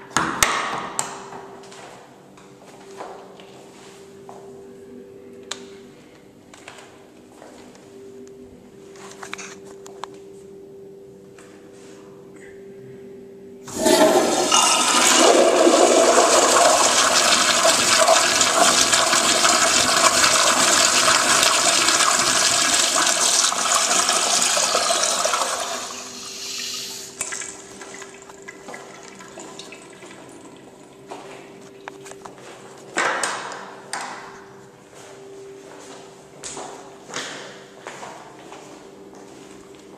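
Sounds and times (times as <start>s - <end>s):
toilet flushing: 13.7s - 30.7s
water trickling: 27.2s - 30.7s.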